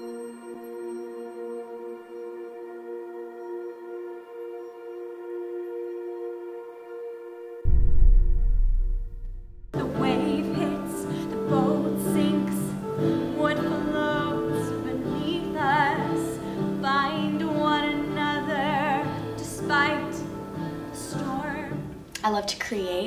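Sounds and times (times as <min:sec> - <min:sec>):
woman singing with vibrato: 0:09.8 - 0:21.9.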